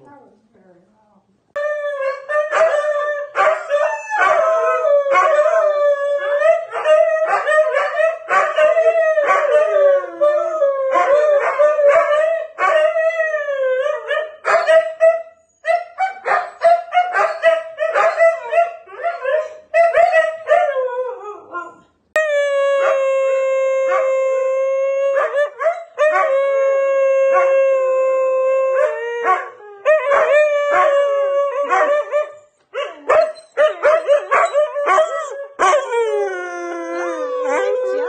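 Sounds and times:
dogs howling: 1.6s - 15.0s, 16.6s - 38.0s
dogs yipping: 14.5s - 20.7s, 31.6s - 35.9s.

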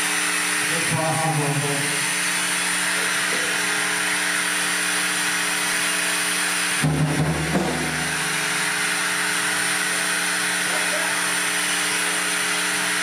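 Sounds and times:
synthesizer drone: 7.1s - 9.4s
low synth swell: 7.7s - 9.2s.

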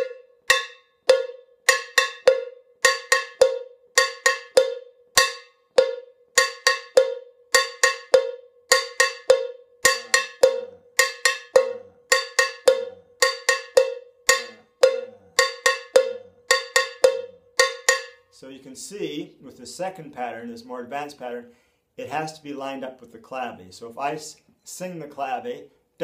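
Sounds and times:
cowbell struck with stick: 0.0s - 18.3s.

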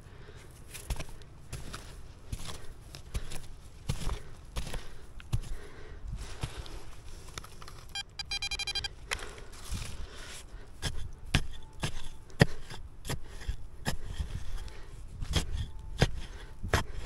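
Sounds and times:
short pulsing electronic beep: 7.9s - 8.9s
digging tool striking ground: 10.8s - 17.0s.

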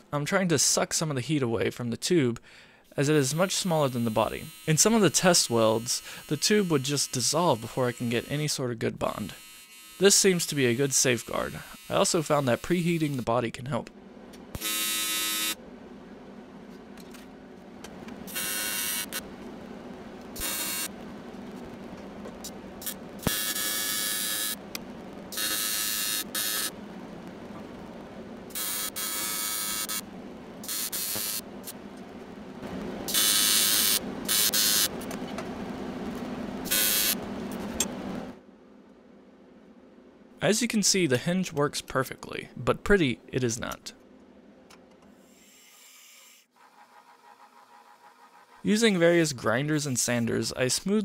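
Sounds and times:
welding arc buzzing: 3.2s - 8.4s, 9.2s - 13.3s, 14.5s - 15.6s, 17.9s - 38.4s
steady low hum: 10.0s - 45.0s.

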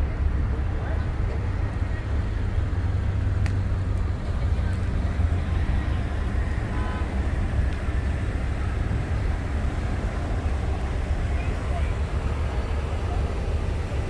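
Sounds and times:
slow traffic rumble: 0.0s - 14.0s.

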